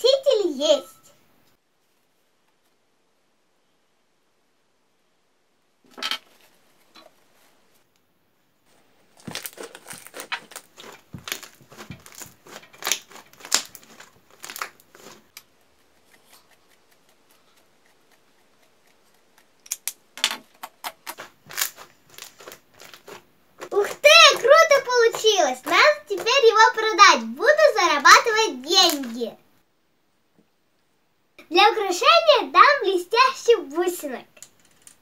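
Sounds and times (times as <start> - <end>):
slime clicking and crackling: 9.2 - 17.2, 20.6 - 26.8.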